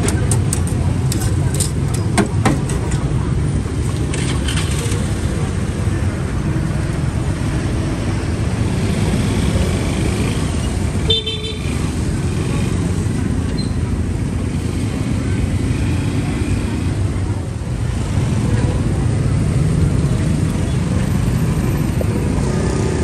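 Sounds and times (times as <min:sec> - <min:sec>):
street traffic: 0:00.0 - 0:23.0.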